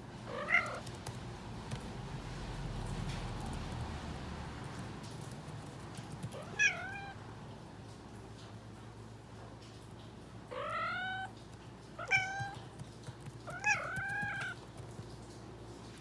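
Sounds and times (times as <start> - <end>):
cat meowing: 0.3 - 0.8, 6.4 - 7.2, 10.5 - 11.3, 12.0 - 12.7, 13.5 - 14.6.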